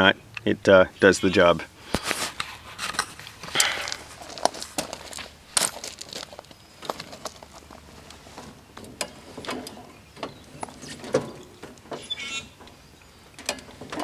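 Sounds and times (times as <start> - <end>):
light metallic clicks and knocks: 8.4 - 12.0, 13.4 - 14.0
metal joint squeak: 9.0 - 14.0.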